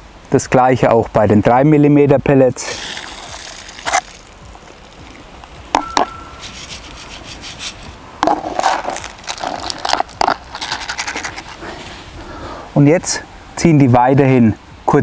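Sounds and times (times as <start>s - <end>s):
pellets rattling over mesh: 2.8s - 5.7s, 8.4s - 11.6s.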